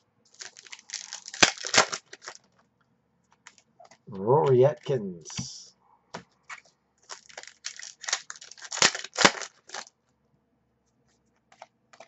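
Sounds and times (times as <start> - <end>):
foil pack tearing and crinkling: 0.3 - 2.4, 7.1 - 9.9
sharp crackles: 0.3 - 2.5, 7.1 - 9.9.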